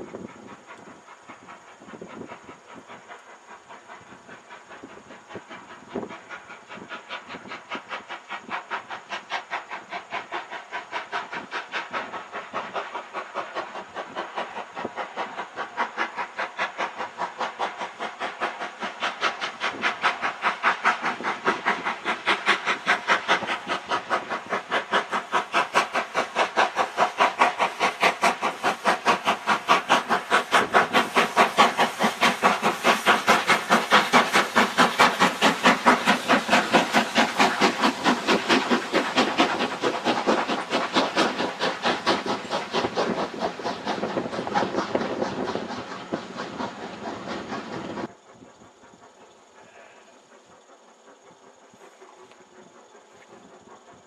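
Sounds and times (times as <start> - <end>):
steam locomotive exhaust beating: 0.0 - 54.0.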